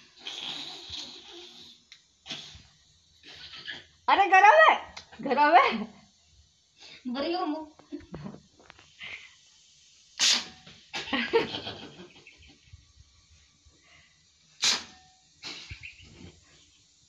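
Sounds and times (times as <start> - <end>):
person sneezing: 2.3 - 2.6, 10.2 - 11.1.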